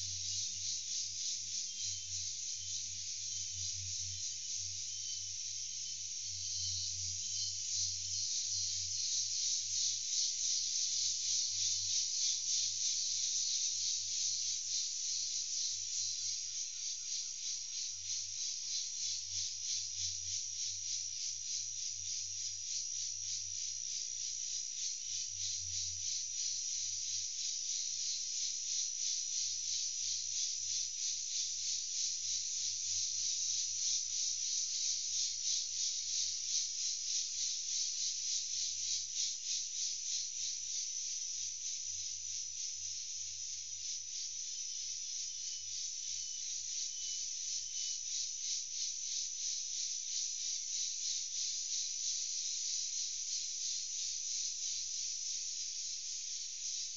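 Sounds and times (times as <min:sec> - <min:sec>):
insect chorus shrilling: 0:00.3 - 0:20.7, 0:45.3 - 0:49.2.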